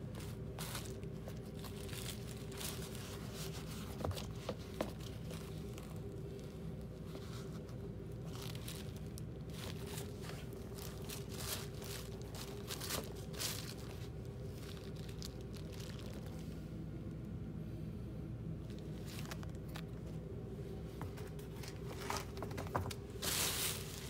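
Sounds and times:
sneakers rustling against bag: 7.1 - 15.0, 21.0 - 24.0.

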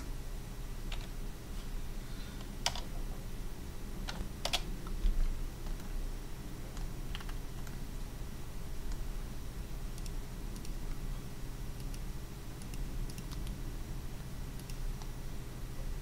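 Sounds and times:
low electrical hum: 0.0 - 16.0
computer keystrokes: 2.6 - 2.9, 4.1 - 4.7, 6.7 - 7.8, 9.9 - 10.8, 11.8 - 12.0, 12.6 - 13.6, 14.6 - 15.1
mouse clicks: 10.0 - 10.8, 11.8 - 12.0, 12.6 - 13.6, 14.6 - 15.1.

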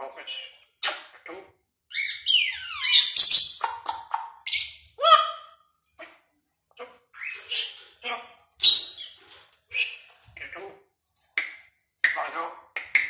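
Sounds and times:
parrot squawking: 0.0 - 5.6, 7.1 - 10.7.

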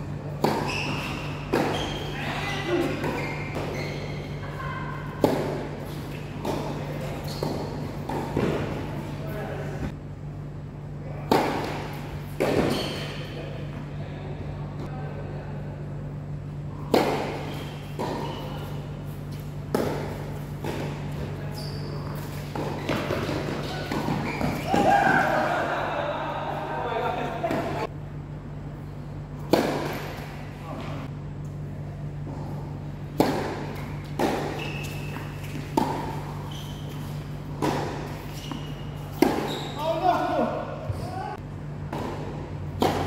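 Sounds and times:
steady low hum: 0.0 - 43.0
tennis ball hit by rackets: 0.4 - 2.0, 5.1 - 6.8, 11.3 - 13.0, 16.8 - 18.4, 19.7 - 21.3, 22.2 - 25.5, 29.4 - 30.3, 33.2 - 36.3, 36.9 - 39.5, 41.9 - 43.0
shoe squeaks: 0.5 - 5.0, 5.9 - 9.1, 12.5 - 13.5, 17.3 - 19.4, 20.1 - 25.4, 33.8 - 40.4
tennis ball hits: 16.8 - 18.4, 29.5 - 30.3, 33.2 - 36.2, 41.9 - 43.0.

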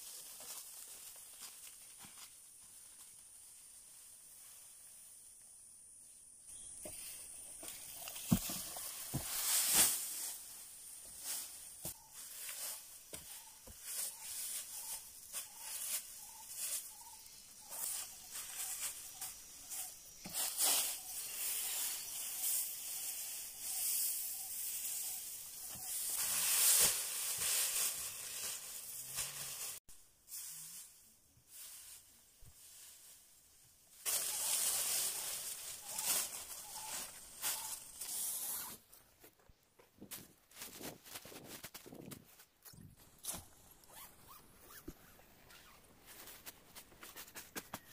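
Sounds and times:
dry leaves and sticks crackling: 0.0 - 5.2, 6.5 - 29.8, 31.5 - 38.7
leafy branches rustling: 0.0 - 5.4, 6.5 - 39.3.

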